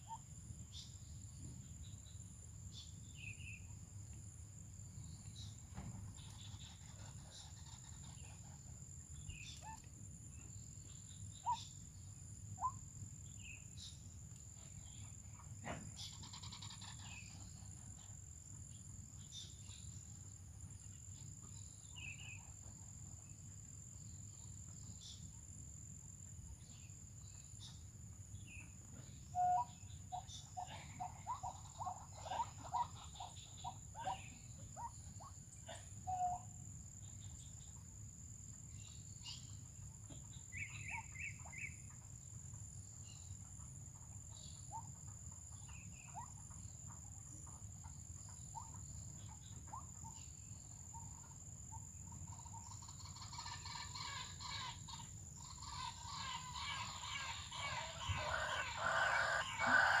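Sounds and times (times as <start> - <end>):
high insect whine: 50.4 - 60.0
waterhen calling: 53.1 - 60.0.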